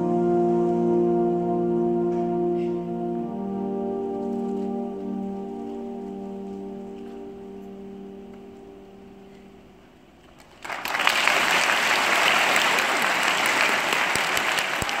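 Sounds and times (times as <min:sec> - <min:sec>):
held musical chord: 0:00.0 - 0:10.3
audience applause: 0:10.4 - 0:15.0.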